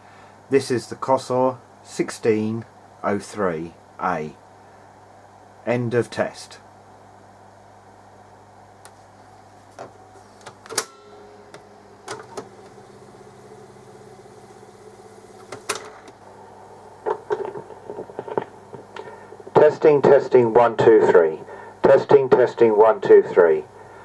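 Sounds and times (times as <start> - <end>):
loud mechanical clunk: 10.7 - 12.8, 15.4 - 16.2
tape rewinding whir: 10.7 - 16.2.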